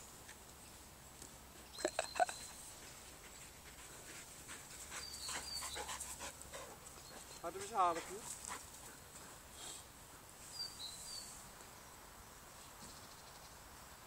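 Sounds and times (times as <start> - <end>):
dog panting: 2.8 - 10.3.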